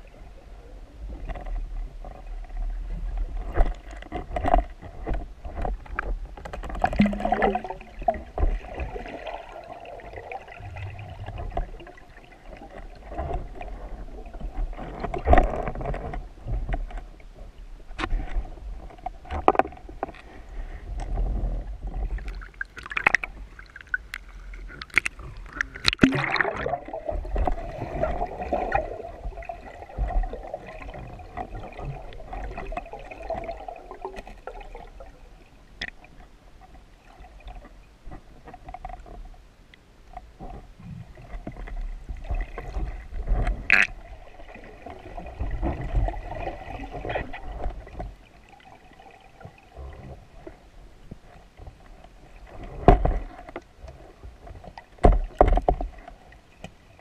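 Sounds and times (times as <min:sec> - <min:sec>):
water moving underwater: 0:00.0 - 0:57.0
rush and splash of surfacing: 0:06.8 - 0:14.0, 0:24.6 - 0:34.1.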